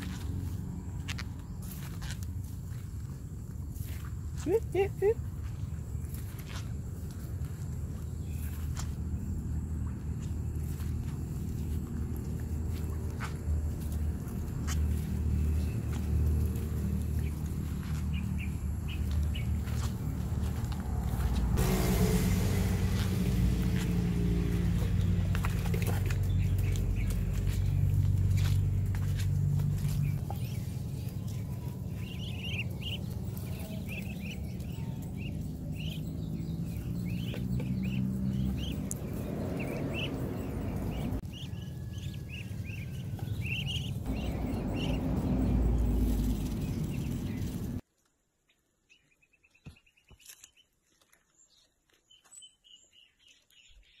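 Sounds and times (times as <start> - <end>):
steady low rumble: 5.4 - 47.8
ducklings peeping: 7.1 - 21.2, 23.6 - 47.8.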